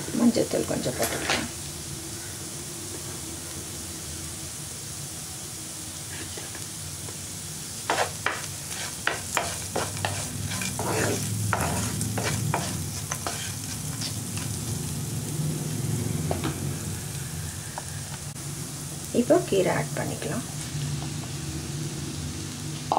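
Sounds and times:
hot oil sizzling in a pan: 0:00.0 - 0:22.9
spatula scraping and knocking pan: 0:07.9 - 0:14.6.

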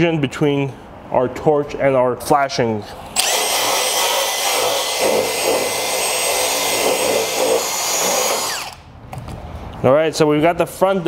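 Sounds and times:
drill brush scrubbing metal: 0:03.2 - 0:08.8.

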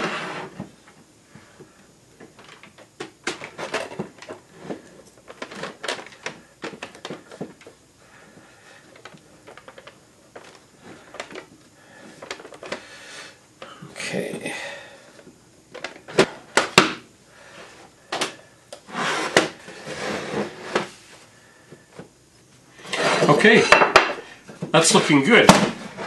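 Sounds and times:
wooden parts knocking together: 0:25.5 - 0:25.8.

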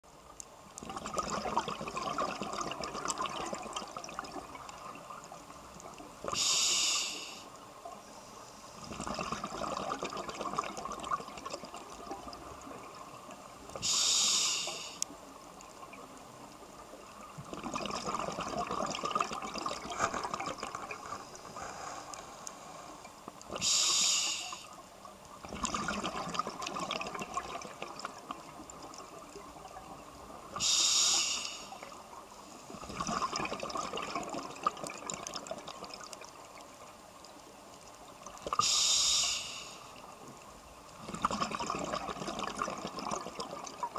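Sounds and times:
regulator inhalation hiss: 0:06.3 - 0:07.6, 0:13.8 - 0:15.1, 0:23.6 - 0:24.8, 0:30.6 - 0:31.8, 0:38.6 - 0:39.9
bubbling exhaled breath: 0:08.8 - 0:11.7, 0:17.5 - 0:24.7, 0:32.8 - 0:35.9, 0:41.0 - 0:43.9.

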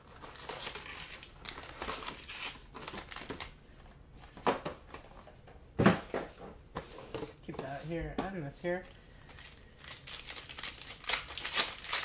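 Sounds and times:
foil wrappers crinkling: 0:00.0 - 0:03.6, 0:09.2 - 0:12.0.

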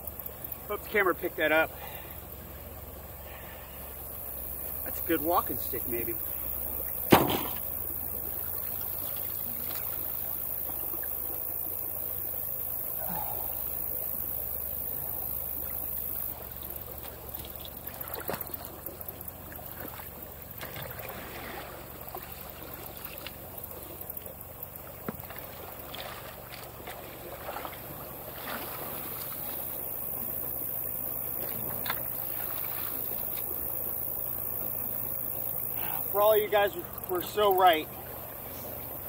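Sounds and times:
steady wash of water: 0:00.7 - 0:39.0
water sloshing and splashing: 0:03.5 - 0:12.4, 0:14.7 - 0:35.3.

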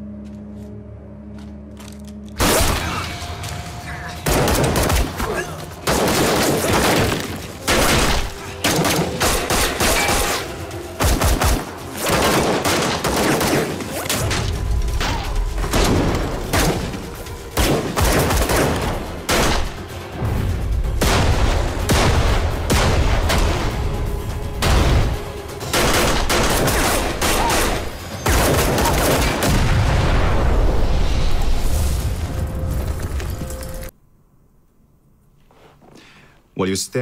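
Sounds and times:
pistol shots: 0:05.8 - 0:14.2.

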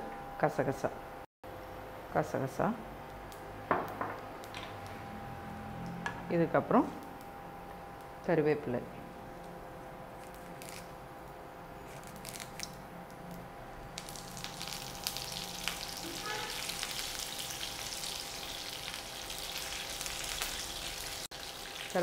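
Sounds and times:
oil sizzling and crackling in a pan: 0:14.0 - 0:22.0.

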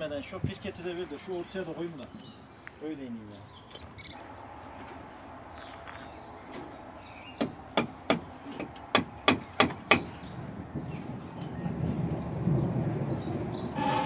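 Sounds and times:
hammer striking wood: 0:07.4 - 0:10.1.

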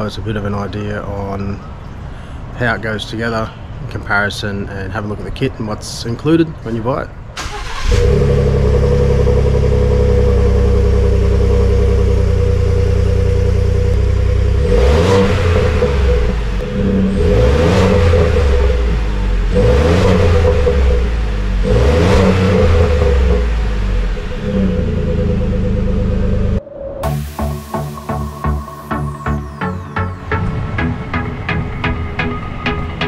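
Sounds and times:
truck engine idling and revving: 0:07.4 - 0:33.0.

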